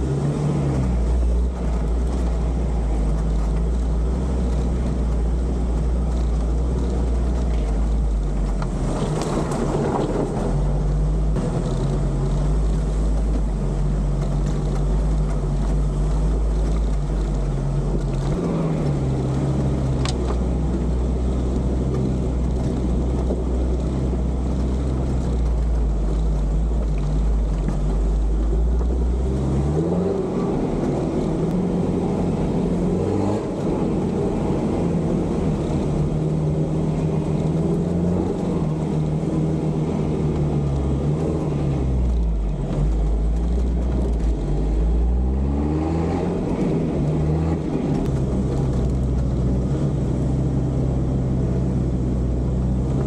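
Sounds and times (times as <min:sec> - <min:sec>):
vehicle engine running under load: 0:00.0 - 0:53.0.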